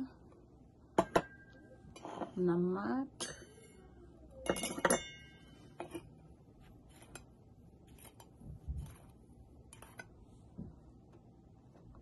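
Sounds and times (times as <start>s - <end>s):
spoon scraping and stirring: 1.9s - 2.5s, 4.6s - 10.4s
metal spoon clinking glass bowl: 4.4s - 6.1s.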